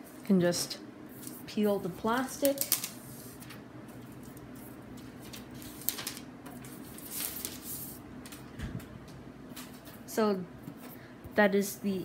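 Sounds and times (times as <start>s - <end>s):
plastic film rustling: 1.2s - 8.4s.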